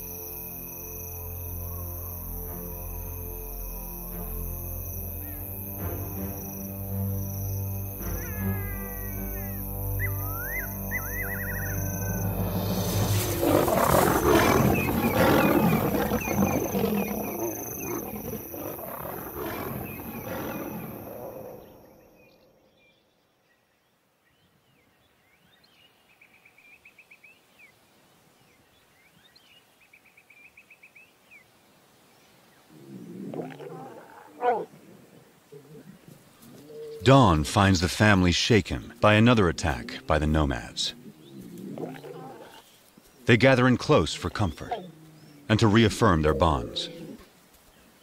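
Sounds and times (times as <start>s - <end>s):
lions roaring and snarling: 10.4s - 21.8s, 32.7s - 37.4s, 40.9s - 47.3s.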